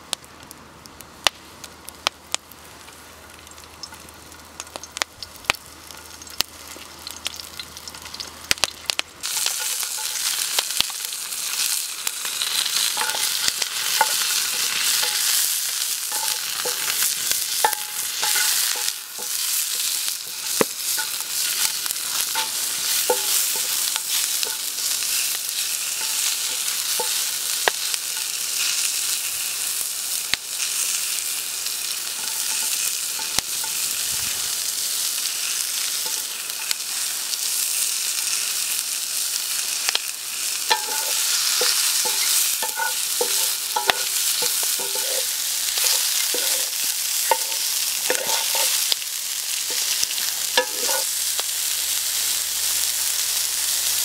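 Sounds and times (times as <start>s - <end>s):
food sizzling in frying pan: 2.3s - 54.0s
wooden spatula scraping pan: 40.7s - 48.9s, 49.7s - 51.1s.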